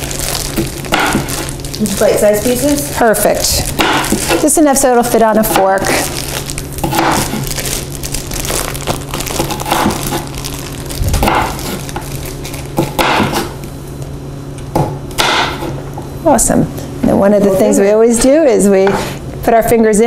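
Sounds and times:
knife crunching through cucumber: 0:08.8 - 0:10.4.

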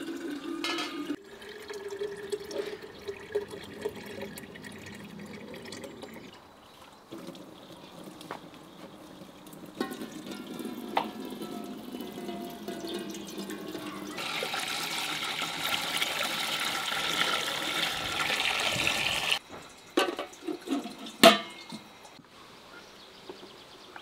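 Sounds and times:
water pouring into a metal pot: 0:00.0 - 0:06.4, 0:07.1 - 0:22.2
metal lid clanking on pot: 0:00.6 - 0:01.2, 0:09.8 - 0:14.2, 0:20.0 - 0:21.8.

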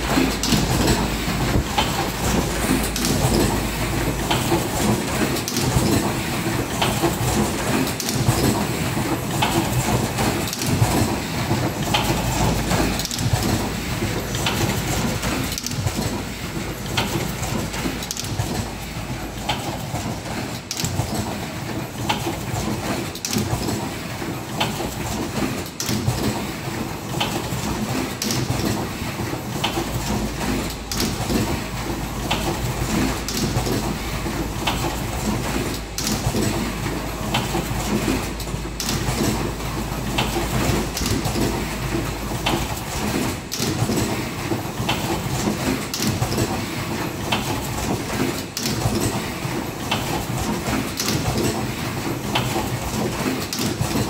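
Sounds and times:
low machine hum: 0:00.0 - 0:22.0
machine clattering: 0:00.0 - 0:54.0
machine clicks and knocks: 0:00.0 - 0:54.0.

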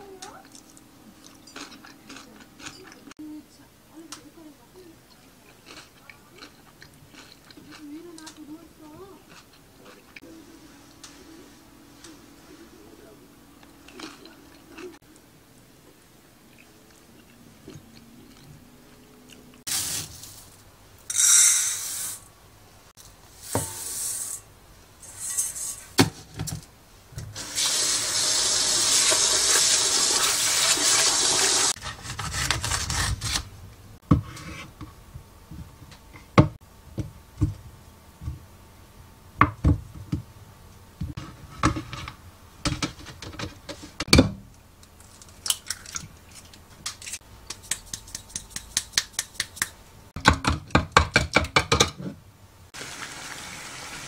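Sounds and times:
tap water running into pot: 0:27.4 - 0:31.7.

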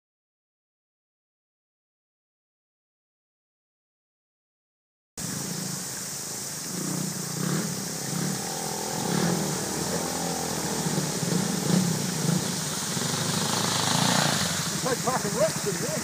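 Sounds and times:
dirt bike engine revving: 0:05.2 - 0:16.0
flowing water rushing: 0:05.2 - 0:16.0
water splashing off wheels: 0:05.2 - 0:16.0.

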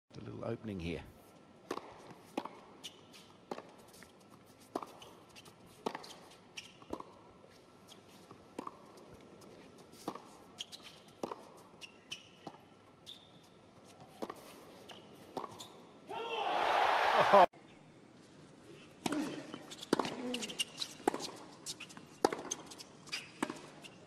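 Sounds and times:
tennis ball struck by racquets: 0:01.6 - 0:02.7, 0:11.2 - 0:11.5, 0:22.2 - 0:22.6
shoes squeaking on court: 0:01.7 - 0:16.0, 0:18.8 - 0:24.0.

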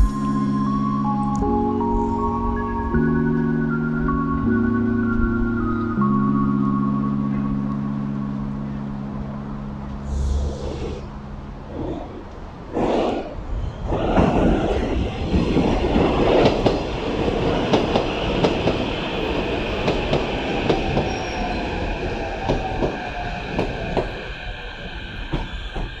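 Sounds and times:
train wheels clacking on rail joints: 0:15.2 - 0:21.5, 0:22.2 - 0:24.2, 0:25.2 - 0:26.0
high squeal: 0:20.4 - 0:26.0.

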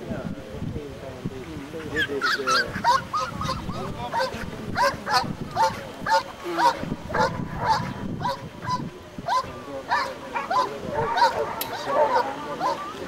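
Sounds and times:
dog barking: 0:02.2 - 0:13.0.

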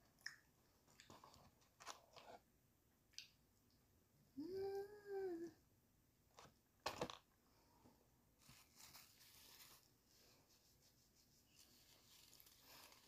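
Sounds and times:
paper tissue ripping: 0:08.4 - 0:09.9, 0:10.6 - 0:13.0
tissue rustling: 0:08.4 - 0:13.0.

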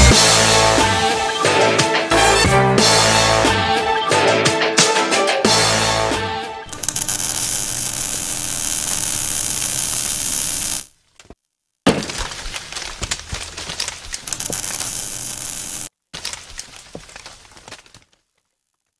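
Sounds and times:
loud crackling hiss: 0:06.7 - 0:10.9, 0:14.3 - 0:15.9
spray of crackles and clicks: 0:06.7 - 0:11.3, 0:12.1 - 0:18.9.

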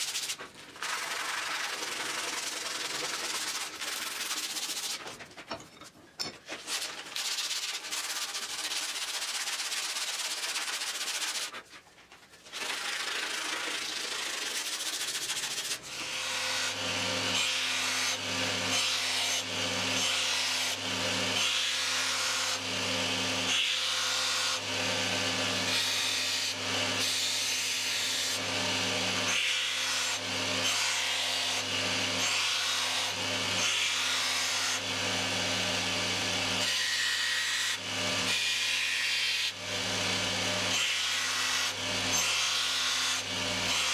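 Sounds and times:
hands sanding wooden handle: 0:00.0 - 0:05.4, 0:06.5 - 0:15.9.

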